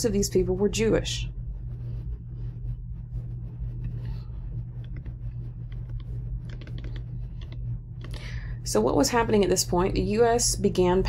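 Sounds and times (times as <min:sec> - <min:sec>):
low electrical hum: 0:00.0 - 0:11.0
faint computer clicks: 0:04.8 - 0:08.2.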